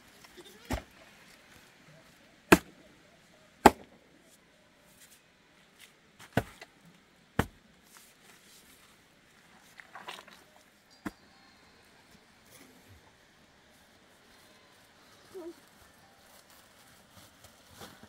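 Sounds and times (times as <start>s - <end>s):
soil scraping: 7.9s - 10.8s.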